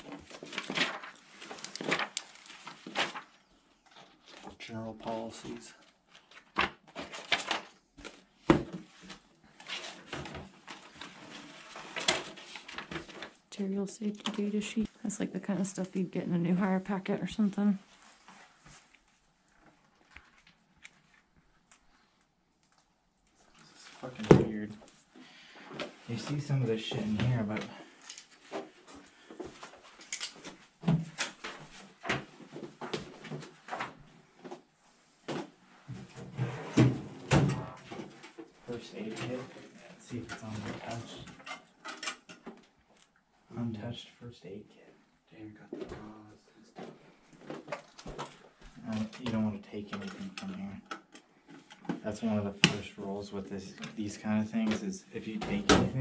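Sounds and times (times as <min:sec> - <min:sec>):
paper pages rustling: 0:00.0 - 0:13.4
small knocks and rustles: 0:45.6 - 0:52.0.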